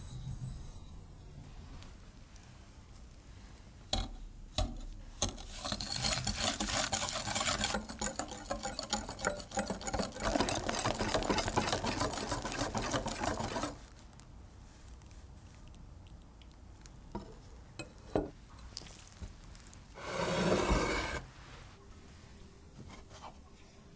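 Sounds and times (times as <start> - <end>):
whisk beating in glass bowl: 5.5 - 13.8.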